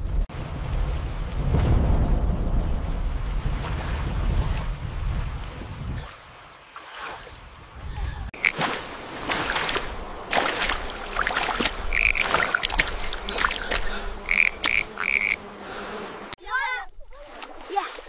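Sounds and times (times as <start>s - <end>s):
low rumble: 0.0s - 5.4s
frogs croaking: 7.6s - 8.7s, 10.0s - 15.6s.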